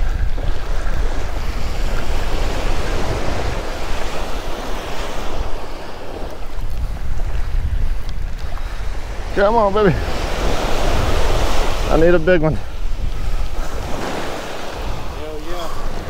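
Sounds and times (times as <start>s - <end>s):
surf waves breaking on beach: 0.0s - 16.0s
wind buffeting microphone: 0.0s - 16.0s.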